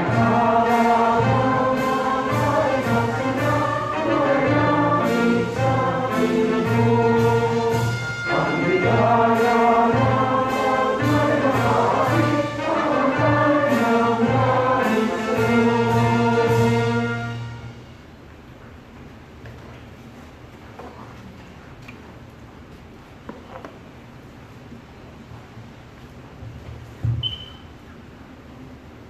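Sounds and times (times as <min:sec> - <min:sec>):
choir singing: 0:00.0 - 0:17.7
orchestra with brass: 0:00.0 - 0:18.2.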